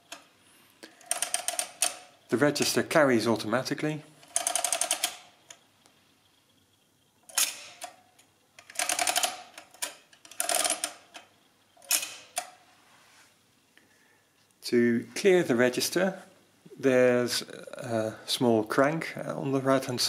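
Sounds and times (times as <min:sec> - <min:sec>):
ratcheting clicks of adding machine: 0:00.0 - 0:02.2, 0:04.2 - 0:05.6, 0:07.3 - 0:08.0, 0:08.6 - 0:12.5.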